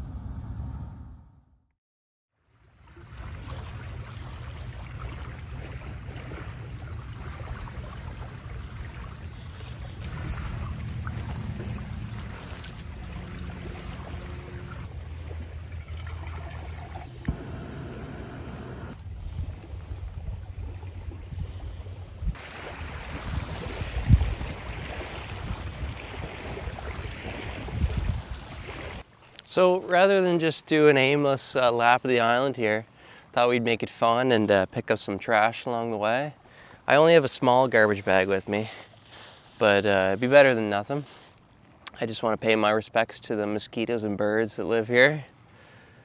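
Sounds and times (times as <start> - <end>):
wind buffeting microphone: 18.6 - 29.0
waves washing on shore: 22.4 - 29.0.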